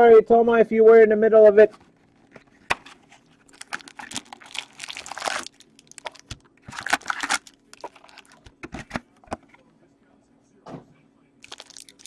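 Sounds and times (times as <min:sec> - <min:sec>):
foil wrappers crinkling: 0:01.8 - 0:08.6, 0:11.4 - 0:12.0.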